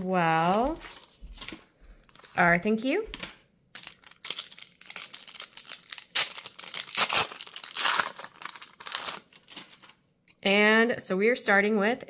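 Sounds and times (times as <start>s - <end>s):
plastic wrapper crinkling and tearing: 3.2s - 10.0s.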